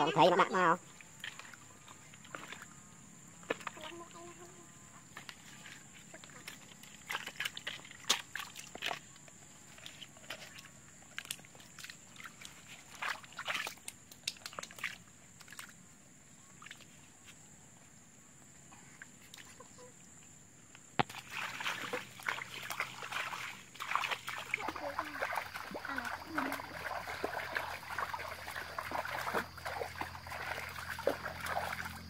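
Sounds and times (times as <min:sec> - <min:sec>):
bare feet squelching through mud: 0:01.0 - 0:02.8, 0:05.1 - 0:15.8, 0:21.0 - 0:32.0.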